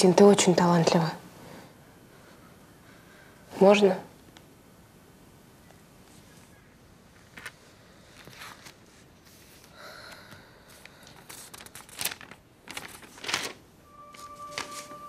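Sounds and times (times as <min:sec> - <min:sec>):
paper rustling: 0:06.1 - 0:09.8, 0:10.7 - 0:15.0.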